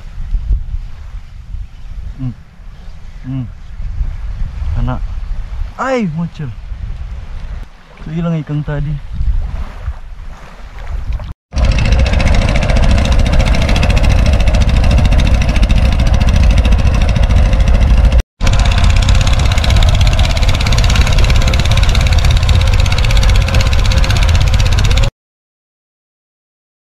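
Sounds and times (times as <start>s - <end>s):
boat engine running: 11.5s - 25.1s.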